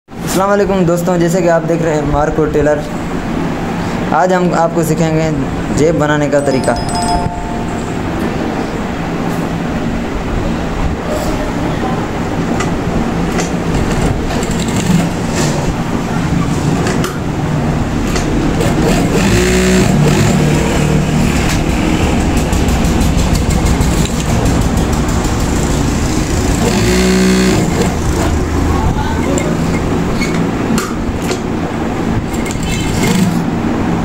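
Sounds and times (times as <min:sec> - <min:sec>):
sewing machine stitching clatter: 0:13.8 - 0:15.6, 0:18.6 - 0:28.4
sewing machine motor hum: 0:18.5 - 0:28.6.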